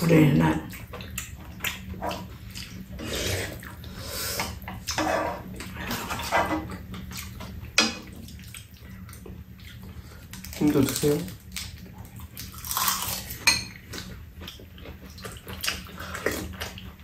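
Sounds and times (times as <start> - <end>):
wet chewing and slurping: 0.7 - 17.0
metal spoons scraping pan: 4.9 - 6.7.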